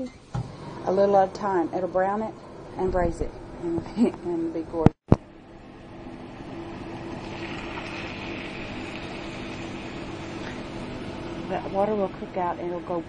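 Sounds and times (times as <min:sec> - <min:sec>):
bacon sizzling in a frying pan: 0:07.0 - 0:11.5.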